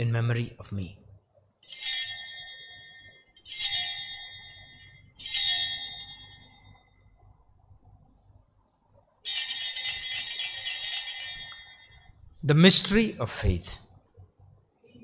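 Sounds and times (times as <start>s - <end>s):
altar bells ringing: 1.6s - 7.2s, 9.2s - 12.3s.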